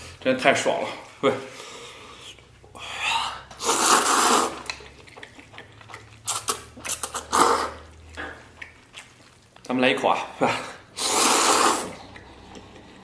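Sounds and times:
man slurping noodles: 0:01.5 - 0:04.8, 0:06.3 - 0:07.9, 0:10.7 - 0:13.0
chewing and mouth clicks: 0:03.4 - 0:09.8, 0:11.2 - 0:13.0.

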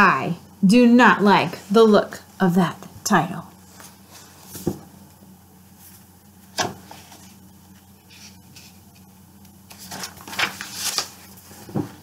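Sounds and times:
book pages rustling: 0:03.7 - 0:04.8, 0:05.7 - 0:12.0.

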